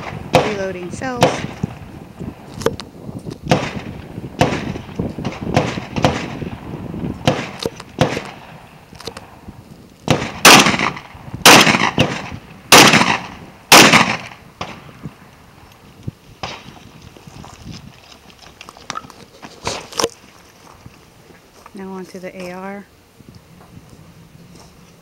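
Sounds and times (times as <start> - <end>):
quieter gun bangs: 0.0 - 1.8, 3.4 - 8.6, 10.0 - 15.0, 16.4 - 16.8
shotgun blasts: 0.0 - 1.9, 3.4 - 8.6, 10.0 - 15.0, 16.4 - 16.7.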